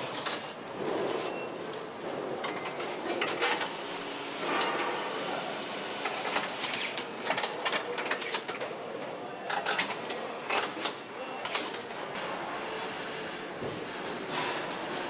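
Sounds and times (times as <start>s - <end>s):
machinery hiss: 3.6s - 6.8s.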